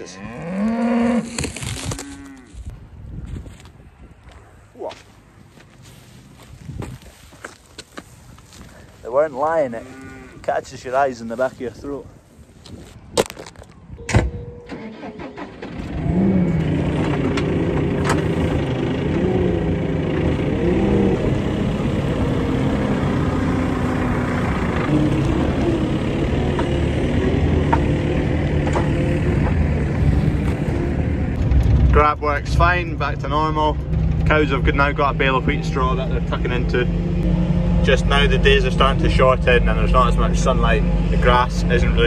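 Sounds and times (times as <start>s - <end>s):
diesel engine under load: 14.0s - 42.0s.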